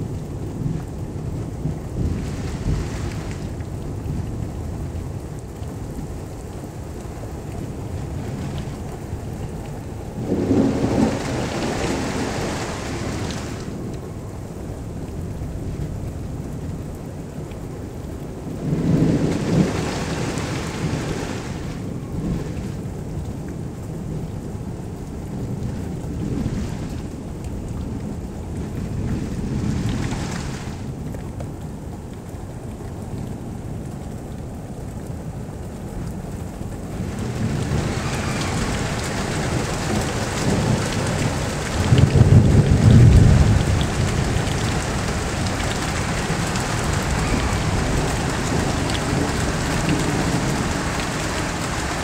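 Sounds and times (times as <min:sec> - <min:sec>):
rolling thunder: 0:00.0 - 0:04.9, 0:07.7 - 0:14.0, 0:18.4 - 0:23.1, 0:36.7 - 0:52.0
steady rain: 0:00.0 - 0:52.0.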